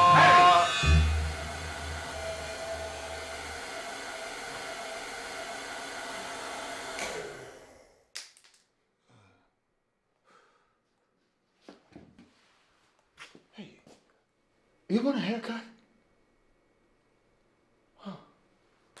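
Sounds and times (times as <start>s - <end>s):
hood hair dryer whirring: 0.0s - 7.9s
hair dryer switch click: 6.9s - 7.4s.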